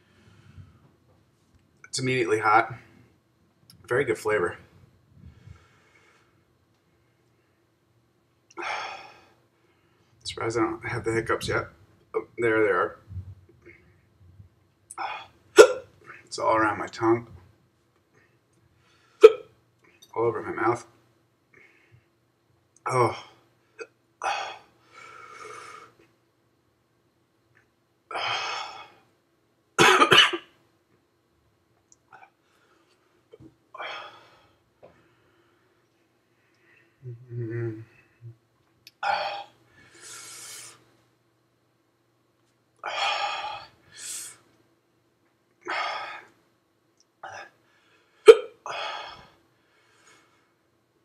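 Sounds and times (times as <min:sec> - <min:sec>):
man hiccupping: 0:14.9 - 0:15.9, 0:37.0 - 0:37.9, 0:48.3 - 0:48.7
man coughing: 0:15.6 - 0:15.9, 0:29.8 - 0:30.5.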